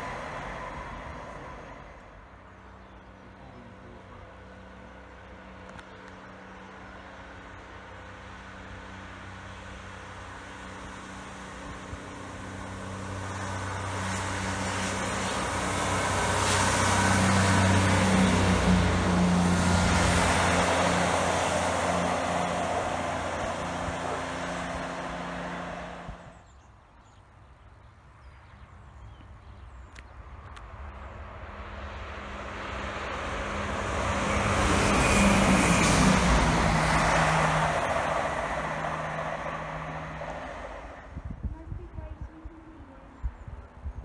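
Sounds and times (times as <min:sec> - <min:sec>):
diesel train engine hum: 0:00.0 - 0:26.4, 0:30.2 - 0:43.4
train wheel rumble: 0:32.8 - 0:42.1.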